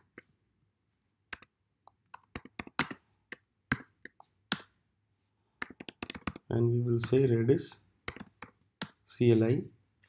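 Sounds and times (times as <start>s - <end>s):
keyboard typing: 1.3s - 4.7s, 5.6s - 7.2s, 8.0s - 9.0s.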